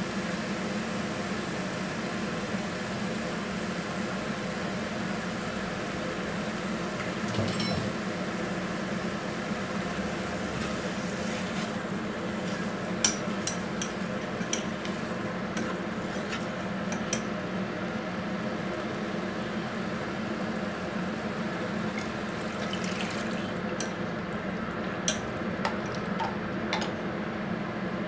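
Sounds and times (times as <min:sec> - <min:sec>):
steady background hum: 0:03.6 - 0:28.0.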